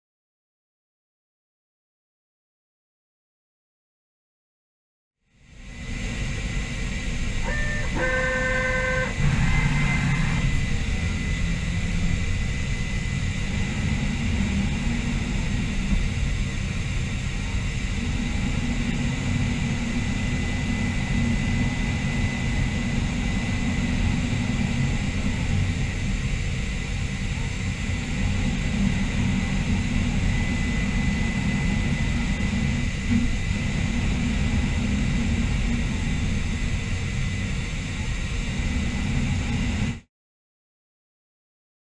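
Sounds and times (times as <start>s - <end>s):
machine rumble with hiss: 5.3s - 40.1s
short electronic beep: 7.4s - 10.1s.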